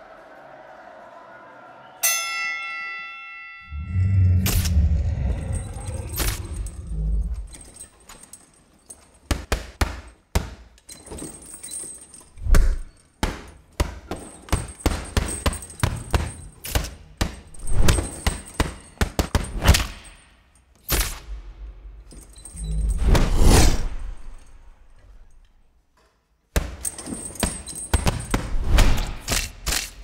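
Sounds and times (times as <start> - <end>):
falling whooshes: 3.7 - 7.5
heavy low hit: 3.7 - 7.5.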